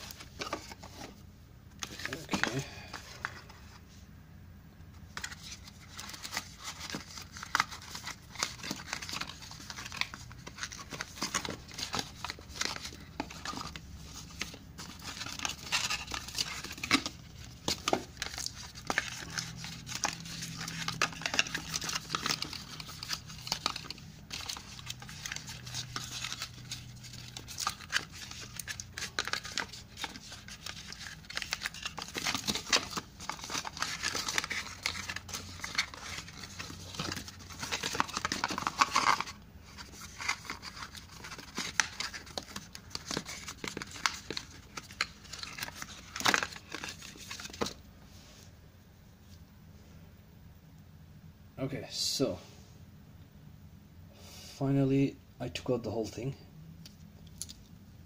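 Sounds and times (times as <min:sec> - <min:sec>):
packaging crinkling and rustling: 0:01.8 - 0:03.6, 0:05.1 - 0:47.8.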